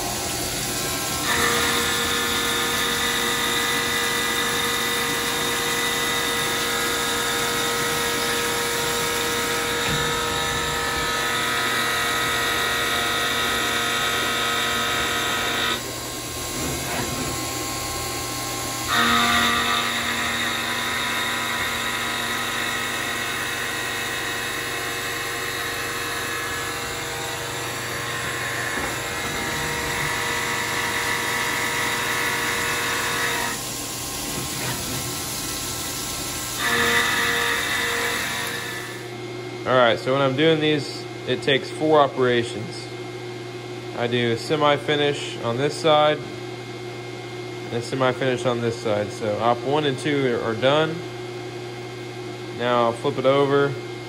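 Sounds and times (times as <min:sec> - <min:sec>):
coolant spraying: 0:00.0 - 0:11.0, 0:22.8 - 0:37.7
milling machine cutting whine: 0:00.0 - 0:39.6.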